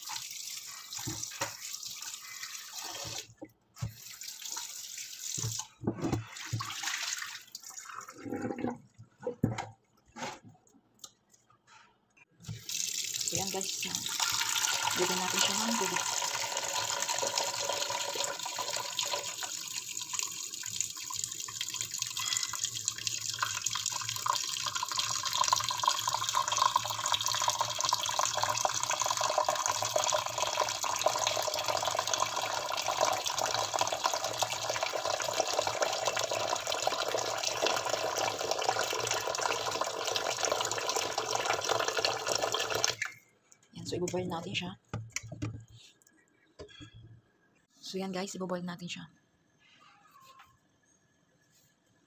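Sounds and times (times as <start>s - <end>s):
tap water splashing into pot: 0.1s - 1.9s.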